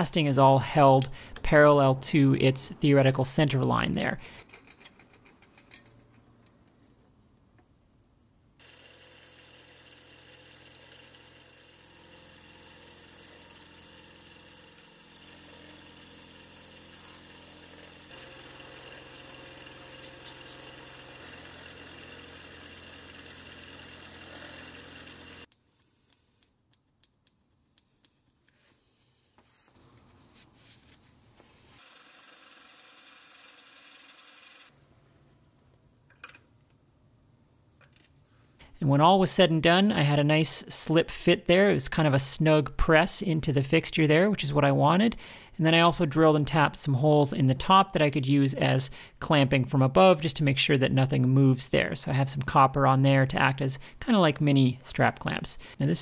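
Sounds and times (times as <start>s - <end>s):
end mill cutting metal: 8.6s - 25.5s
milling machine motor hum: 8.6s - 25.5s.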